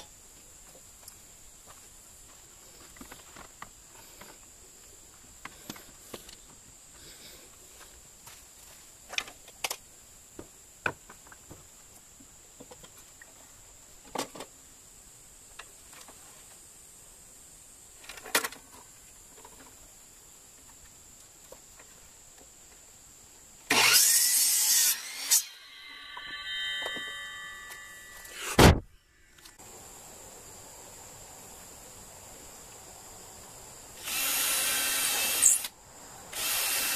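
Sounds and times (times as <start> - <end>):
miter saw cutting board: 23.7 - 28.8, 34.0 - 35.7, 36.4 - 36.9.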